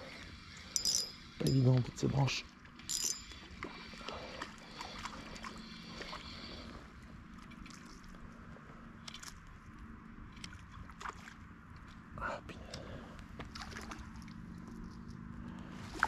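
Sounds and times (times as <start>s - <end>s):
low water sounds: 0.0s - 16.0s
fishing reel whirring and clicking: 0.1s - 1.7s, 2.8s - 4.0s.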